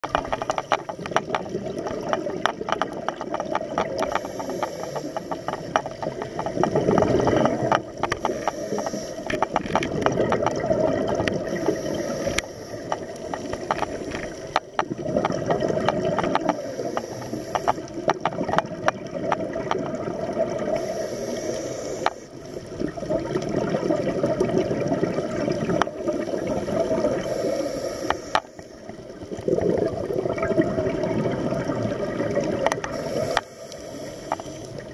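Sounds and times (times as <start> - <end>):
exhaled bubbles gurgling: 0.0 - 34.9
regulator inhale hiss: 4.0 - 5.8, 8.0 - 9.5, 11.4 - 13.5, 16.4 - 18.0, 20.7 - 22.6, 27.2 - 28.9, 32.8 - 34.9.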